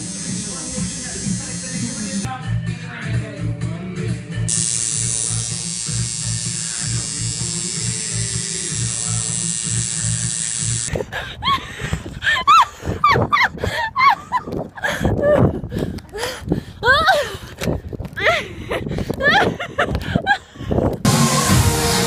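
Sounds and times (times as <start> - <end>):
tattoo machine buzzing: 0.0 - 2.3, 4.5 - 10.9
background music with beat: 2.2 - 4.5, 21.1 - 22.0.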